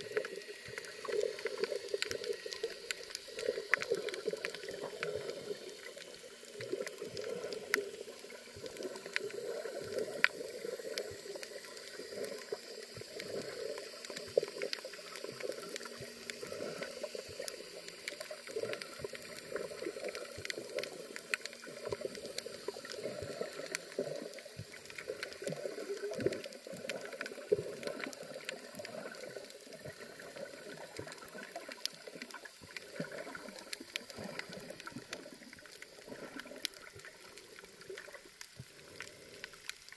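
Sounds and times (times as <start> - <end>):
muffled underwater noise: 0.0 - 39.9
sharp underwater clicks: 0.0 - 39.9.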